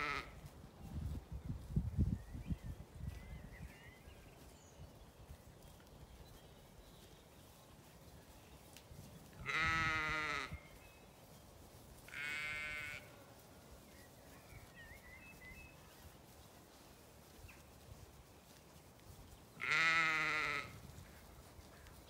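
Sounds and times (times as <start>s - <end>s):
sheep bleating: 0.0s - 0.4s, 9.4s - 10.6s, 12.1s - 13.1s, 19.6s - 20.8s.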